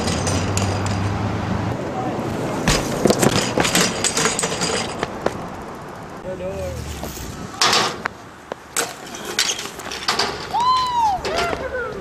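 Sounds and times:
bike crashing onto pavement: 2.6 - 5.1, 8.7 - 11.6.

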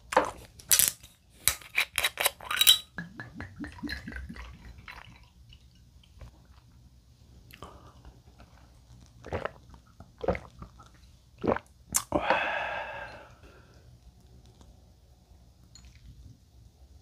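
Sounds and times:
man gulping: 2.9 - 5.2, 9.2 - 13.4
man sighing: 12.1 - 13.4.

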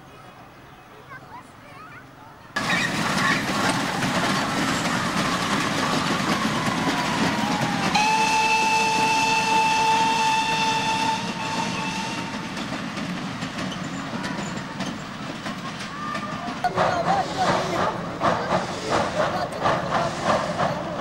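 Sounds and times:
passenger train passing: 0.0 - 21.0
steam locomotive whistle: 4.2 - 12.7.

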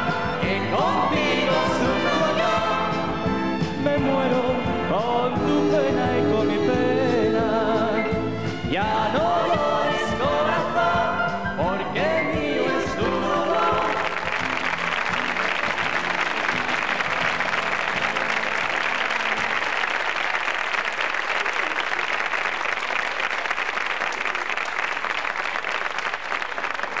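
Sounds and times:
studio audience applauding: 13.4 - 27.0.

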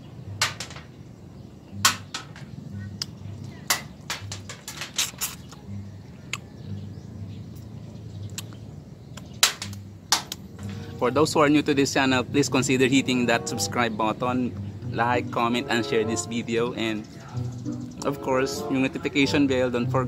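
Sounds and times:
wet lip smacks: 8.3 - 8.6.

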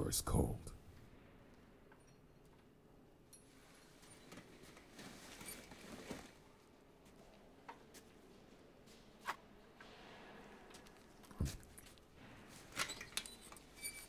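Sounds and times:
heavy cloth rustling: 3.6 - 6.5.

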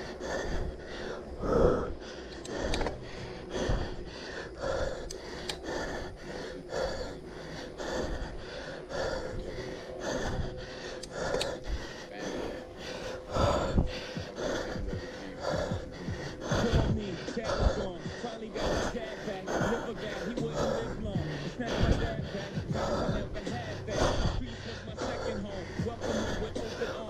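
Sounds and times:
person breathing heavily: 0.0 - 27.0.

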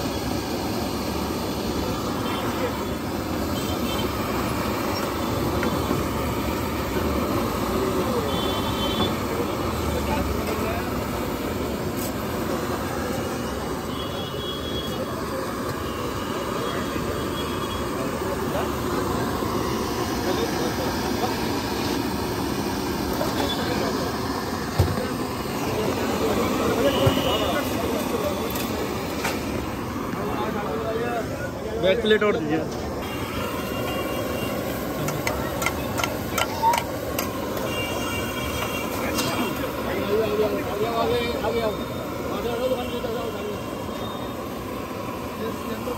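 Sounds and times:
gas burner roaring: 0.0 - 45.9
low hum of busy street: 0.0 - 45.9
steady noisy background: 0.0 - 45.9.

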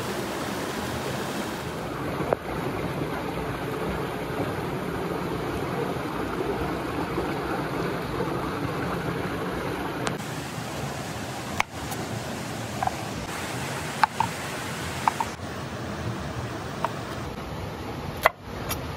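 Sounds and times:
stream running over rocks: 0.0 - 18.9.

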